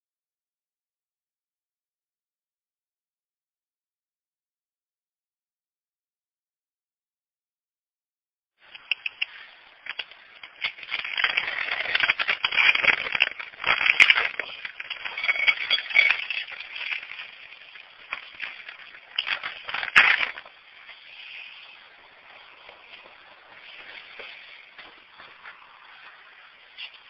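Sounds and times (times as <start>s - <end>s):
kibble rattling and scraping: 8.8s - 26.1s.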